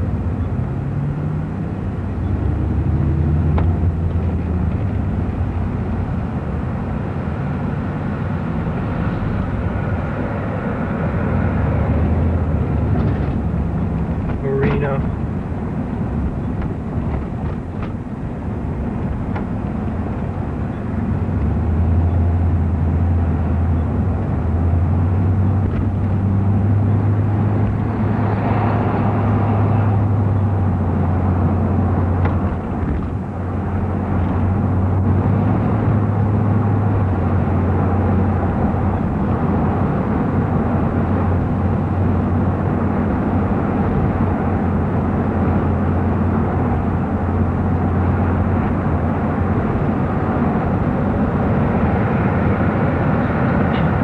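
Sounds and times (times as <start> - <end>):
car engine and road noise: 0.0 - 54.0
large vehicle passing: 21.5 - 54.0.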